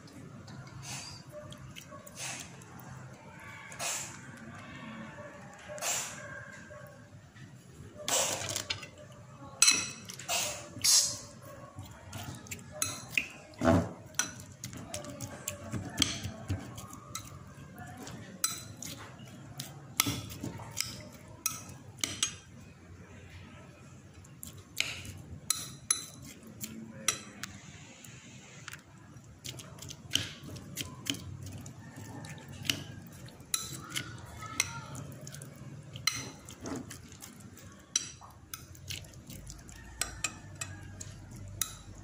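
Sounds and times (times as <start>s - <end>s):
spoon stirring food in bowl: 0.0s - 4.4s, 8.1s - 22.7s, 24.0s - 27.7s, 28.6s - 42.0s
spoon clinking against glass: 9.6s - 10.1s, 12.8s - 13.3s, 25.5s - 26.3s.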